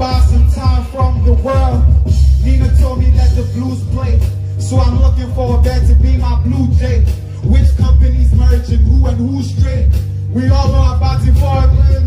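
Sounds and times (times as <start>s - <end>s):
man singing into microphone: 0.0s - 12.0s.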